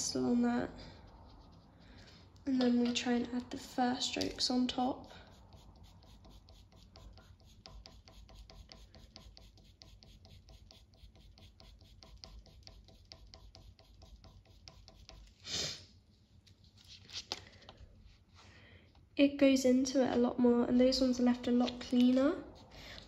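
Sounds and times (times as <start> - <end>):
pencil scratching on paper: 0.2 - 2.4, 4.8 - 15.4, 22.4 - 23.0.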